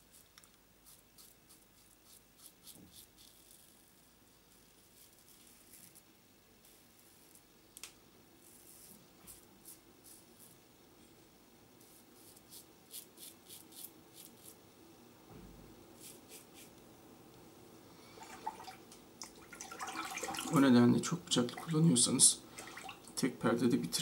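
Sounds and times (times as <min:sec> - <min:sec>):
razor scraping stubble: 0:00.1 - 0:06.0, 0:11.8 - 0:14.6, 0:16.0 - 0:16.8.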